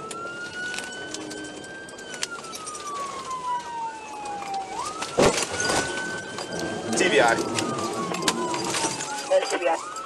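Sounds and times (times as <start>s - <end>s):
police siren wailing: 0.0s - 10.0s
loud car crash: 5.2s - 6.1s, 7.0s - 9.3s.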